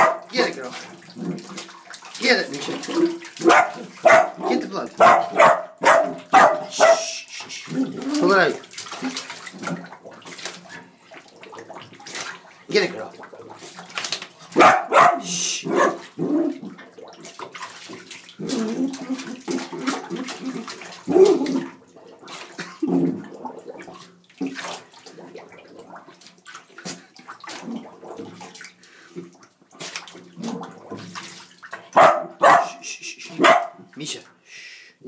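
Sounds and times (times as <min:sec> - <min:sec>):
dog vocal sounds: 0:00.0 - 0:00.3, 0:02.7 - 0:09.3, 0:14.5 - 0:16.8, 0:18.4 - 0:21.8, 0:31.9 - 0:33.8
claws scrabbling on tub: 0:00.0 - 0:07.0, 0:07.6 - 0:15.1, 0:15.7 - 0:32.6
water sloshing: 0:00.0 - 0:34.4.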